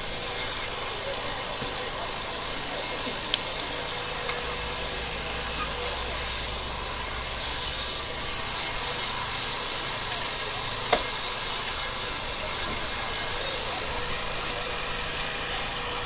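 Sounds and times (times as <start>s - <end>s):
engine running: 0.0s - 16.0s
murmur of crowd: 0.0s - 16.0s.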